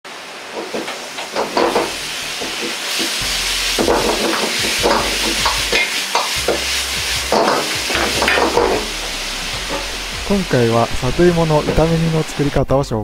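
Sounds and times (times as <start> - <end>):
food sizzling in a wok: 0.1 - 12.5
metal ladle scraping a wok: 0.7 - 10.1.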